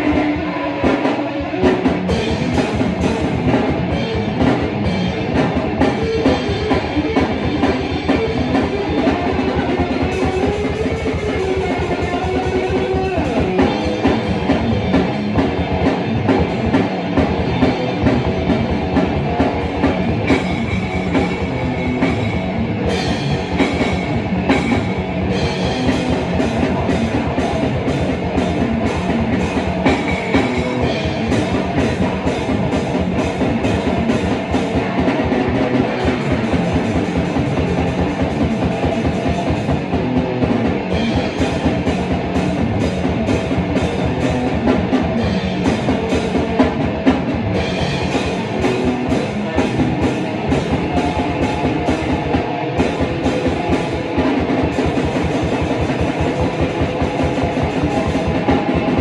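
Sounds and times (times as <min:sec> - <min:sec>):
drum kit beat: 0:00.0 - 0:59.0
electric guitar riffing: 0:00.0 - 0:59.0.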